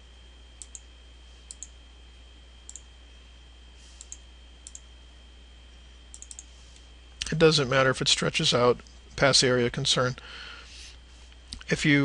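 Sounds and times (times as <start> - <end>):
steady low hum: 0.0 - 12.0.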